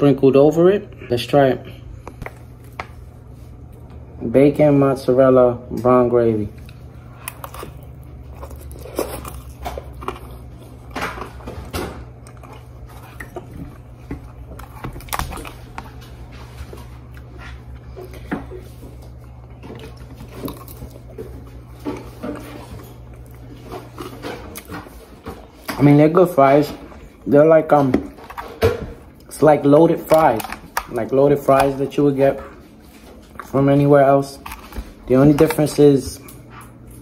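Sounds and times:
steady low hum: 0.0s - 37.0s
person chewing food: 6.5s - 25.8s.

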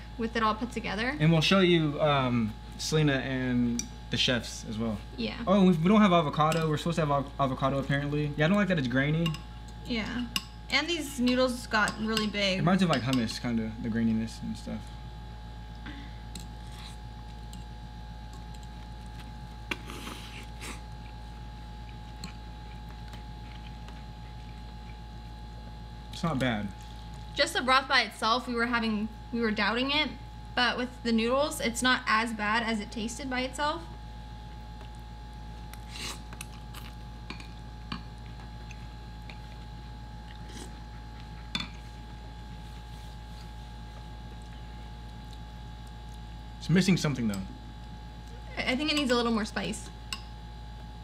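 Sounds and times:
forks clinking on ceramic bowls: 9.2s - 9.5s, 11.2s - 13.4s
chewing: 18.3s - 25.3s, 34.5s - 46.3s.

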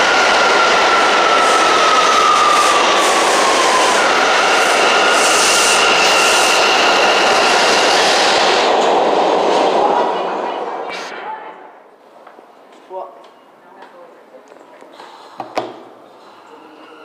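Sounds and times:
subway train rumbling past: 0.0s - 12.7s
high whine of train: 0.0s - 13.6s, 15.9s - 17.0s.

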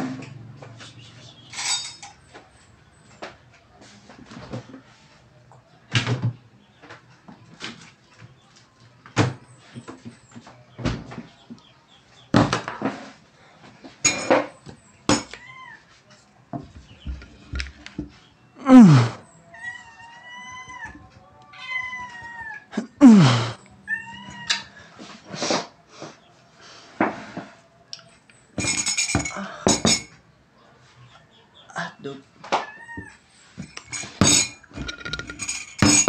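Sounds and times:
spoon and mug clinking on table: 1.5s - 2.2s, 14.0s - 15.4s, 28.6s - 30.1s, 33.7s - 36.0s.

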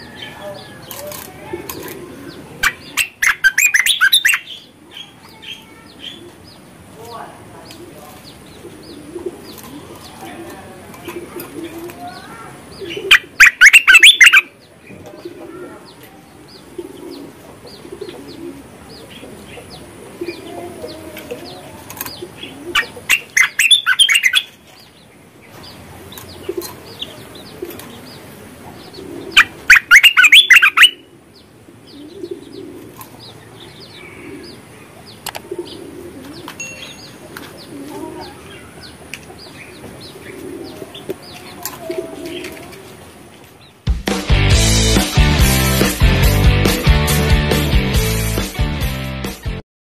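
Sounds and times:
low cooing: 0.0s - 2.9s, 8.6s - 12.2s, 15.0s - 23.3s, 26.4s - 29.7s, 31.0s - 33.1s, 33.7s - 36.6s, 37.3s - 39.1s, 40.0s - 43.0s
bird chattering calls: 0.0s - 6.7s, 11.0s - 14.6s, 15.5s - 24.6s, 25.6s - 42.7s.

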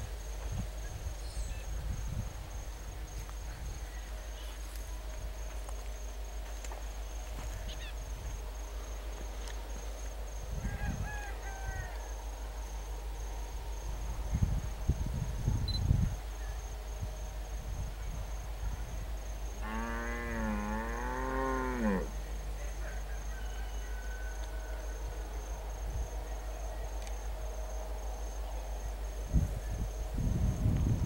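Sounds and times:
cow mooing: 19.6s - 22.1s.

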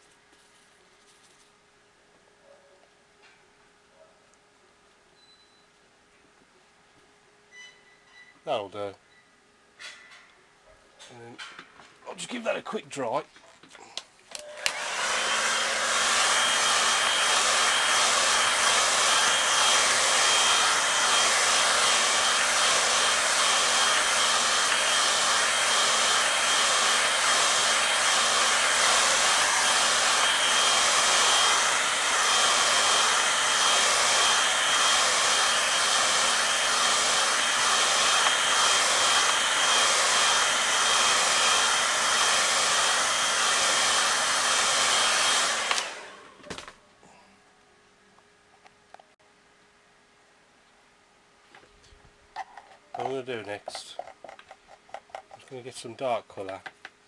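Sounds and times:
hair dryer blowing: 14.3s - 46.7s, 53.0s - 53.8s.

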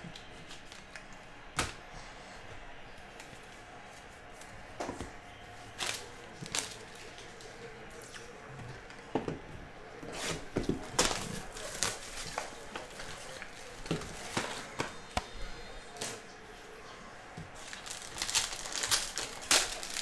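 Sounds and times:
foil pack crinkling: 10.8s - 14.6s, 17.6s - 20.0s
foil wrapper tearing: 11.0s - 12.6s, 17.6s - 20.0s.

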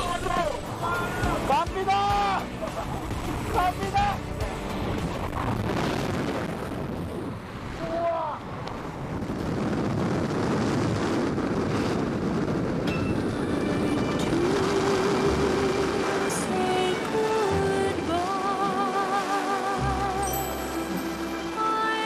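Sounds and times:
wind rushing over microphone: 0.0s - 20.1s.

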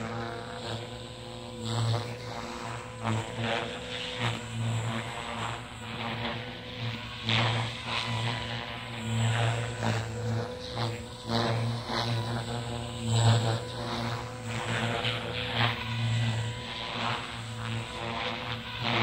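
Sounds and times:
radio-controlled helicopter hum: 0.0s - 19.0s.

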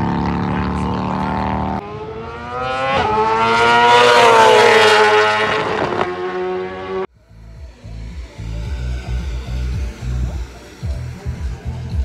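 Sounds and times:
motorcycle accelerating: 0.0s - 12.0s
racing motorcycle engine revving: 0.0s - 12.0s.

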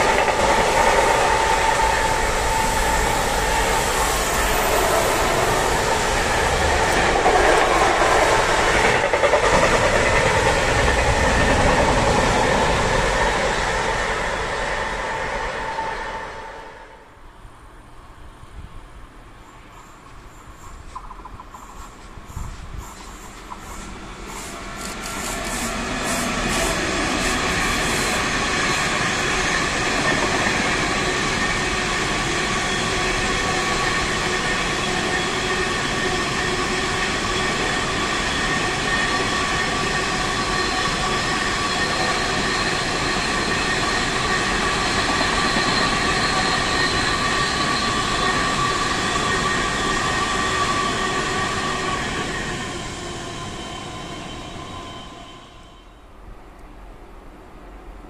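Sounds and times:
rumble of train wheels on rail: 0.0s - 58.0s.

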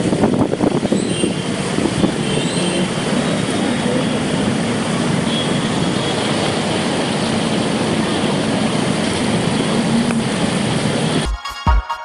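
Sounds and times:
vehicle engines running: 0.0s - 11.3s.

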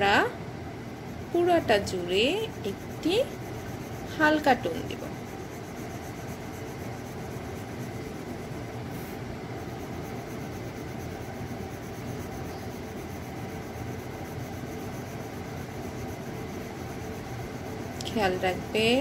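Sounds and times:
faint low hum: 0.0s - 19.0s
pencil shading on paper: 2.2s - 17.3s.

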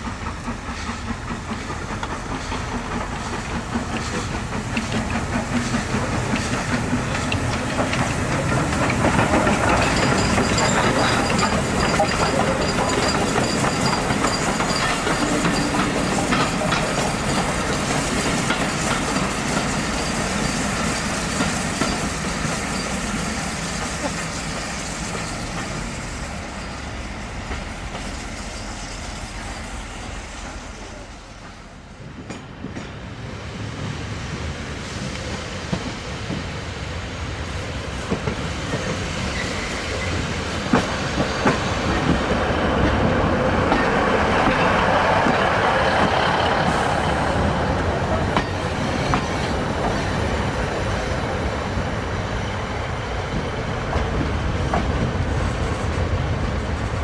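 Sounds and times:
train wheels clicking over rail joints: 0.0s - 29.6s, 38.0s - 51.8s.

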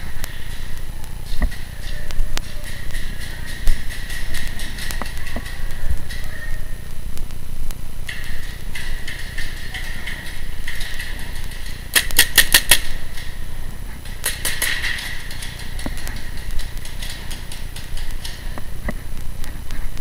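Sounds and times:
paintball markers firing bursts: 11.9s - 13.2s.

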